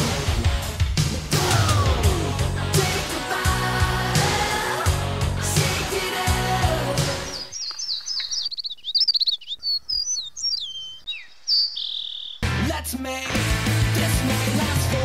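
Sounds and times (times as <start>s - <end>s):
music: 0.0s - 7.5s, 12.4s - 15.0s
songbirds chirping: 5.9s - 12.5s.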